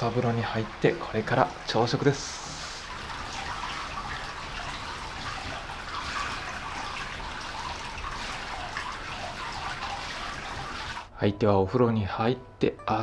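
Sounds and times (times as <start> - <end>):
water running into a bath: 0.0 - 11.1.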